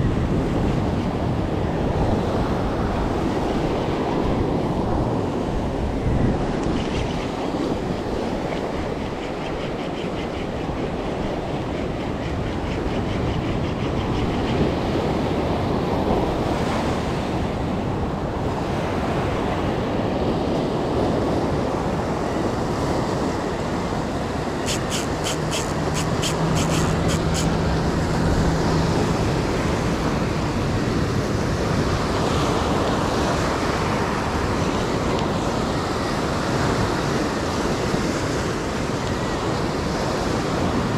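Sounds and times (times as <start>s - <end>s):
rapid ticks: 24.7s - 27.5s.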